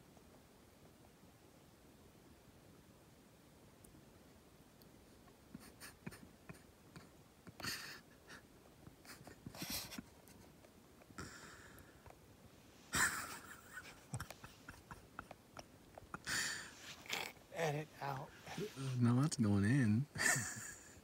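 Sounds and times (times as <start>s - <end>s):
man's stifled laughter: 5.6s - 8.4s, 12.9s - 17.2s, 20.2s - 21.0s
jacket rustling: 16.7s - 19.0s.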